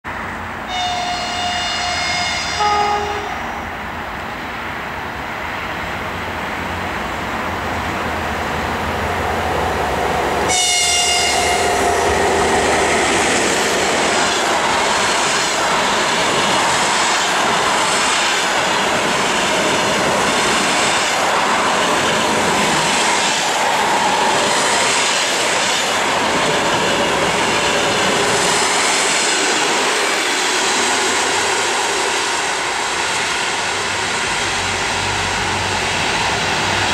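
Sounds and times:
train coaches rushing past: 0.1s - 36.9s
locomotive two-note horn: 0.7s - 3.6s, 10.5s - 11.8s.

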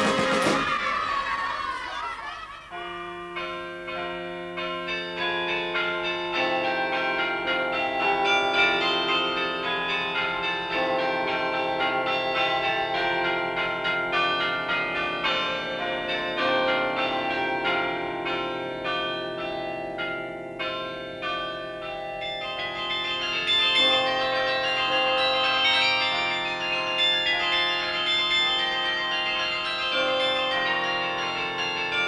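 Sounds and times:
chiming bells music: 2.5s - 32.0s.

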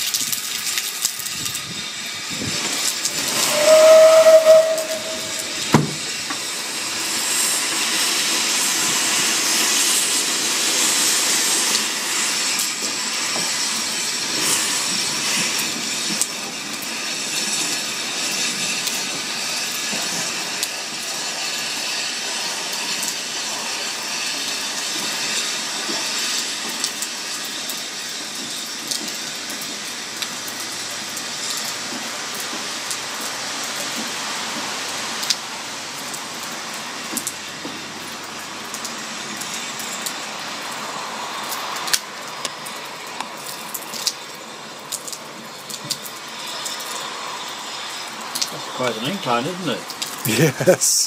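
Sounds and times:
rain: 0.0s - 51.0s
steam hissing: 0.0s - 51.0s
steam locomotive pulling away: 0.0s - 51.0s
wind noise: 1.2s - 6.4s.

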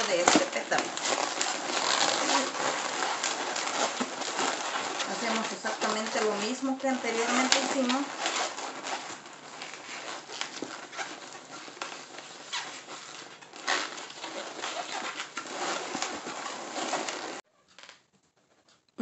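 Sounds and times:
balloons squeaking and rubbing: 0.0s - 18.0s.

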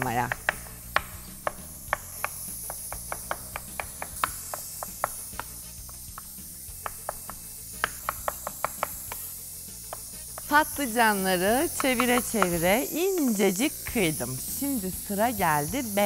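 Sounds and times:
knife chopping on wooden board: 0.0s - 10.8s, 11.5s - 13.3s.

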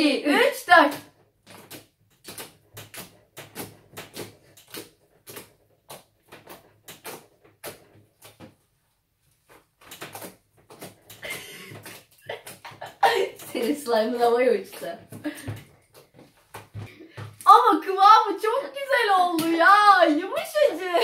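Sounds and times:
slime clicking and popping: 0.9s - 8.4s.

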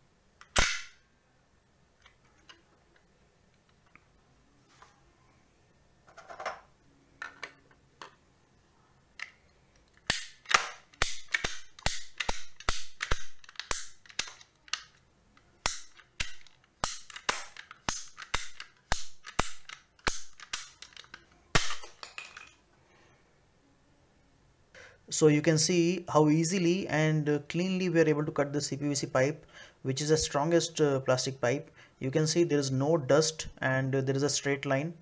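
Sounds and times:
ratchet pipe cutter clicking: 10.1s - 14.8s, 15.6s - 21.0s.

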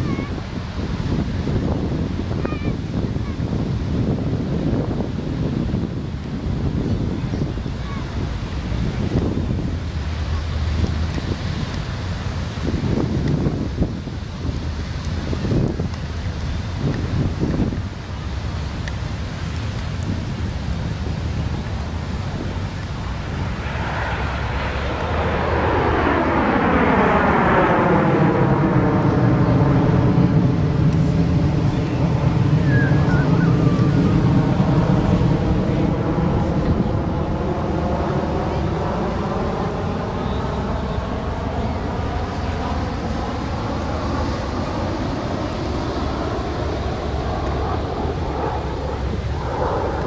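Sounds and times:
jet flyby: 0.0s - 50.0s.

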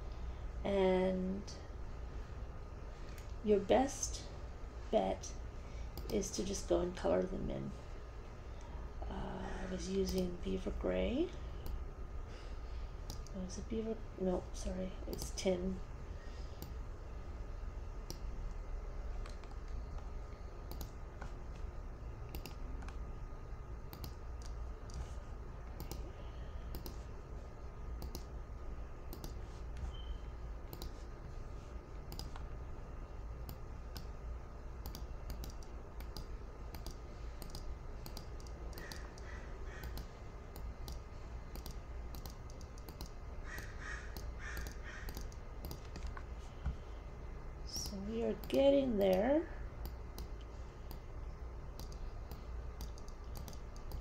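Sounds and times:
low steady hum: 0.0s - 54.0s
computer mouse buttons clicking: 20.7s - 21.3s, 22.3s - 23.0s, 23.9s - 25.1s, 25.7s - 26.1s, 26.7s - 27.0s, 28.0s - 28.3s, 29.1s - 30.0s, 30.7s - 31.0s, 32.1s - 32.5s, 34.8s - 46.2s, 47.8s - 51.1s, 51.7s - 54.0s.

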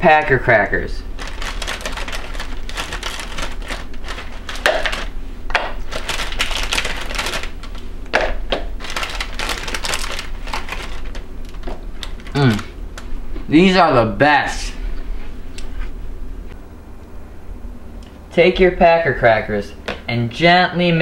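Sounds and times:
crackers crinkling in hand: 1.1s - 7.9s, 8.8s - 13.1s.

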